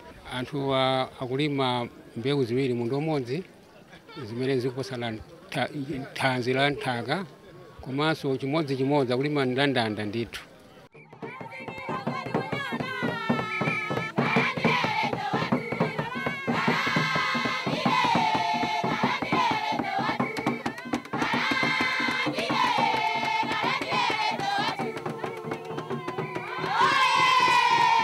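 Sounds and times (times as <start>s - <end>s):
women singing together: 11.2s - 28.0s
rhythmic hand clapping: 11.6s - 28.0s.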